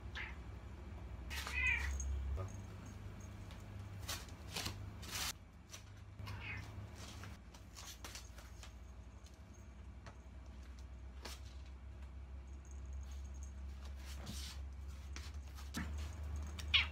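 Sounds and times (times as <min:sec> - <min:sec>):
cat meowing: 0:00.1 - 0:00.4, 0:01.3 - 0:02.1, 0:06.2 - 0:06.8, 0:16.6 - 0:16.9.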